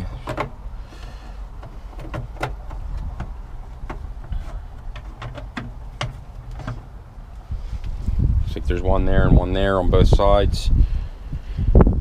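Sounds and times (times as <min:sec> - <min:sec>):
light clicks and knocks: 0:00.0 - 0:00.6, 0:01.5 - 0:07.0
steady low rumble: 0:00.0 - 0:12.0.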